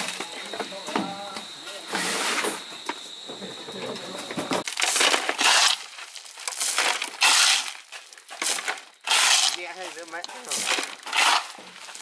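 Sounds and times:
shovel scraping wet concrete: 1.9s - 2.6s, 4.7s - 12.0s.

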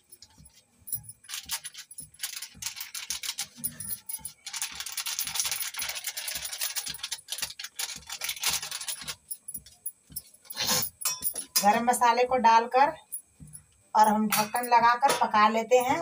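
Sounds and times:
bangles jingling: 0.0s - 12.0s, 13.0s - 16.0s
plastic packet crinkling: 1.3s - 9.2s.

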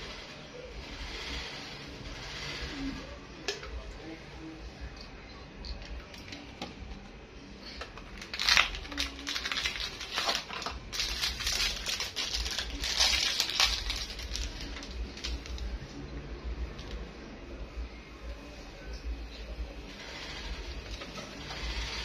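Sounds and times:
wet crinkly rustling: 8.2s - 15.8s.

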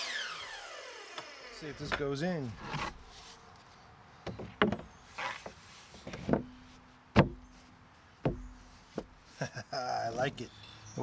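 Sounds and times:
deck board knocking on framing: 7.1s - 7.5s, 8.2s - 9.2s.

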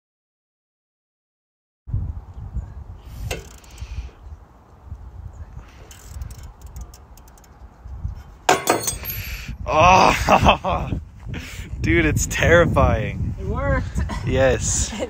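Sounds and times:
sharp metallic knocks: 8.5s - 9.2s
metal tool clicks and clinks: 8.5s - 9.3s.

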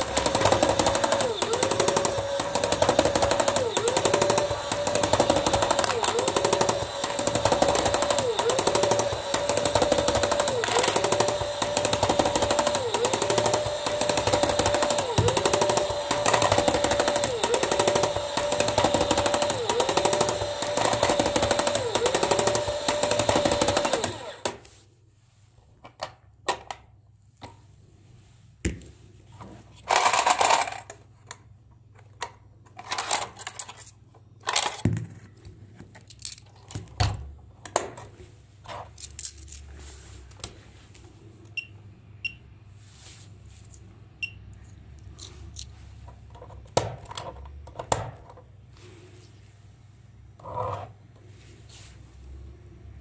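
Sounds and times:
toy motor and gears whining: 0.0s - 24.6s.

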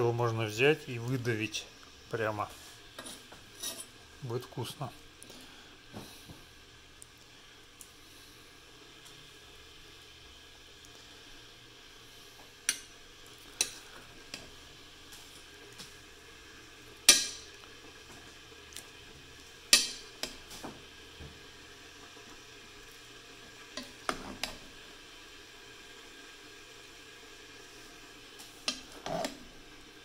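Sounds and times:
metal utensil scraping cast iron pot: 3.0s - 4.0s, 28.7s - 29.4s.

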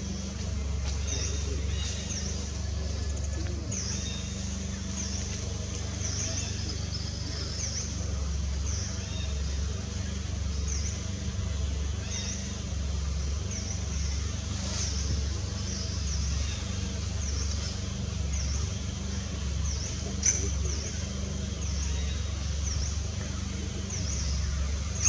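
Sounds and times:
pulsing low rumble: 0.0s - 25.0s.

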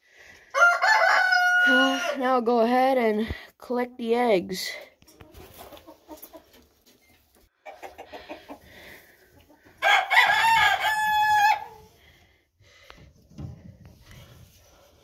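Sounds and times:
rooster crowing: 0.5s - 2.2s, 9.8s - 11.9s
chickens clucking: 5.0s - 9.8s.

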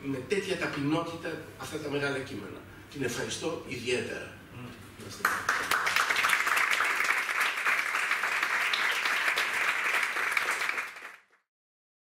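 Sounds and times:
audience applauding: 5.2s - 11.4s.

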